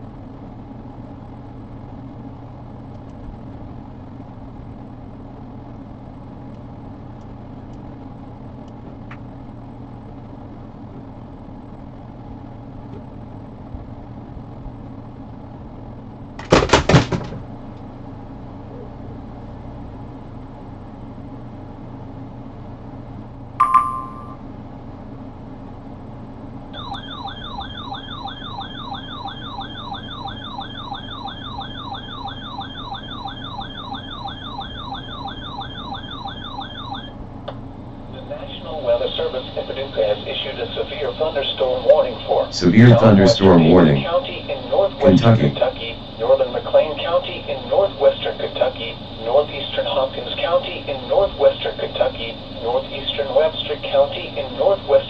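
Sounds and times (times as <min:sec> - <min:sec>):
steady hum: 0:00.0 - 0:55.0
electronic beep: 0:23.6 - 0:24.4
warbling alarm siren: 0:26.8 - 0:37.2.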